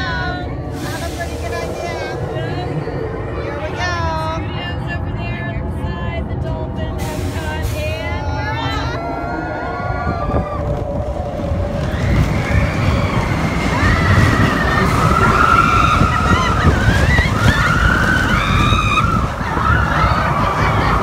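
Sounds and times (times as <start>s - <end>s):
roller coaster rumbling on track: 0.0s - 21.0s
riders screaming and yelling: 8.6s - 21.0s.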